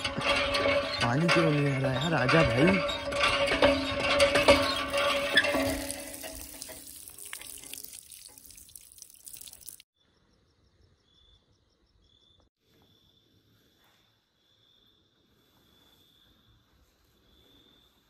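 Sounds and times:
water splashing onto stone floor: 4.4s - 9.9s
faint crickets chirping: 10.0s - 18.0s.

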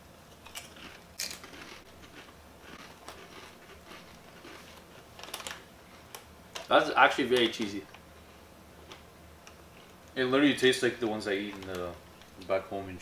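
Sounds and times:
people crunching potato chips: 0.4s - 7.6s.

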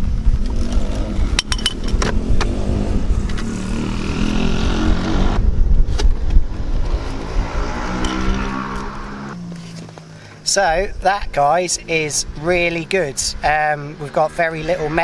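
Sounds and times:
pit bike engines revving: 0.0s - 15.0s.

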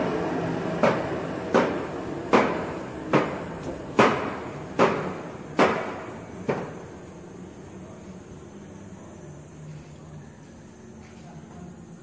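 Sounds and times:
machine knocking: 0.0s - 6.9s
steady machine hum: 0.0s - 12.0s.

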